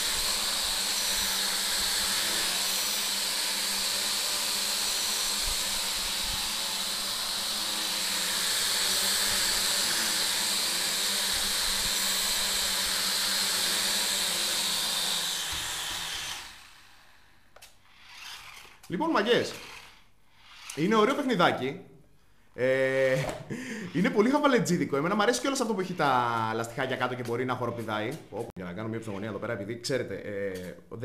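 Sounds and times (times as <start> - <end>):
quadcopter propellers whirring: 0.0 - 17.1, 17.9 - 18.8.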